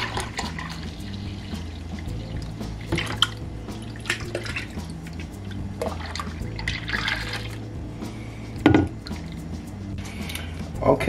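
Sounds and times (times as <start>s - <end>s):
liquid pouring into pot: 0.0s - 7.6s
splashing and gurgling: 0.0s - 7.7s.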